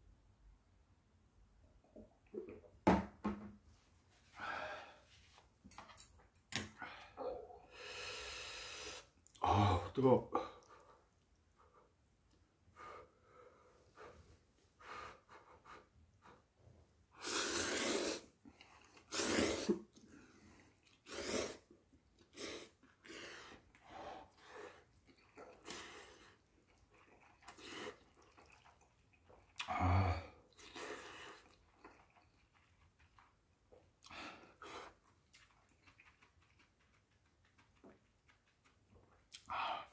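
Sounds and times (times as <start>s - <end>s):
person breathing: 4.3s - 5.3s, 6.8s - 9.1s, 12.7s - 16.4s
person slurping noodles: 17.2s - 19.9s, 20.8s - 23.6s, 24.3s - 32.4s.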